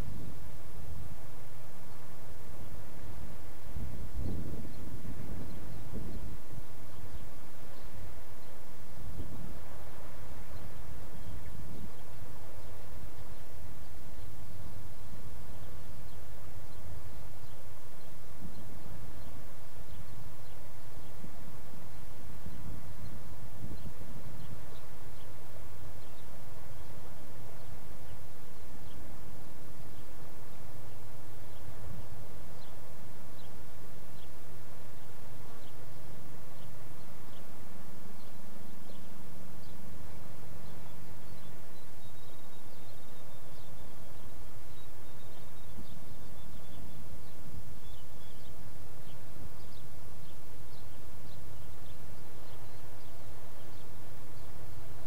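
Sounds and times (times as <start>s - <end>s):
low hum: 0.0s - 55.0s.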